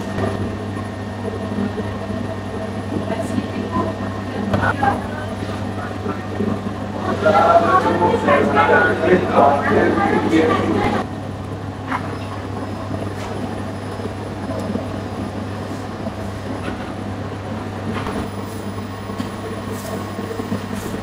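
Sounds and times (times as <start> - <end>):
dough mixer motor humming: 0.0 - 21.0
mixing arm churning dough: 0.0 - 21.0.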